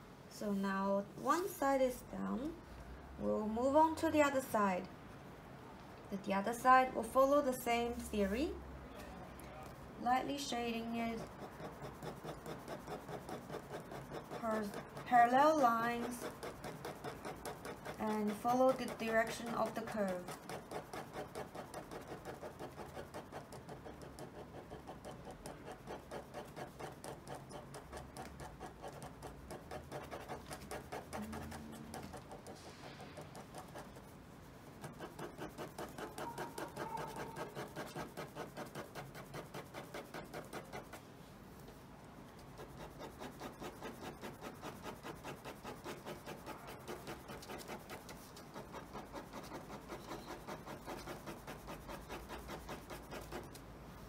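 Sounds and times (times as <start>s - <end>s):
ballpoint pen scratching on paper: 10.1s - 41.0s, 42.3s - 53.7s.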